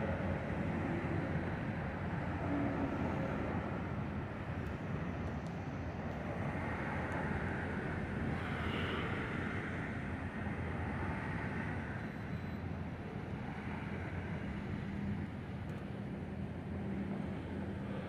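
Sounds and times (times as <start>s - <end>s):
passing cars: 0.0s - 18.0s
low engine hum: 9.1s - 18.0s.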